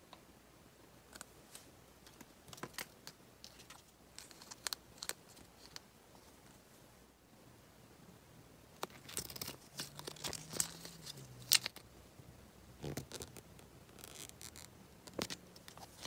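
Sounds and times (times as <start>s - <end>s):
plastic wrapper clicks and crinkles: 2.1s - 5.8s, 8.8s - 11.8s.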